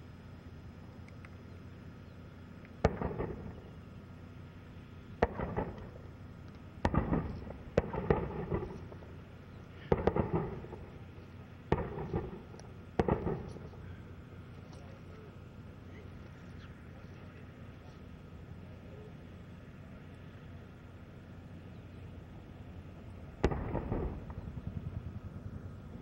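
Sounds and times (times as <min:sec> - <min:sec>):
distant explosions with echo: 0:02.8 - 0:03.8, 0:05.2 - 0:06.1, 0:06.8 - 0:14.1, 0:23.3 - 0:26.0.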